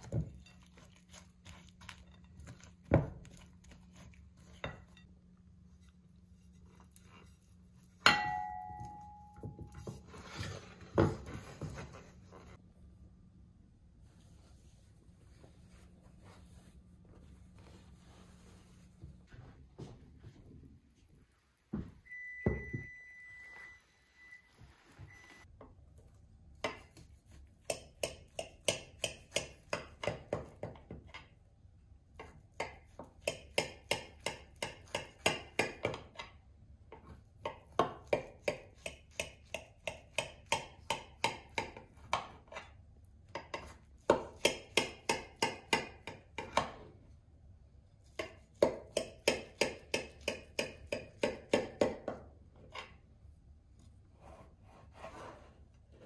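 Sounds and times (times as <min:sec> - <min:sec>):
brief high ringing tone: 0:22.0 - 0:25.4.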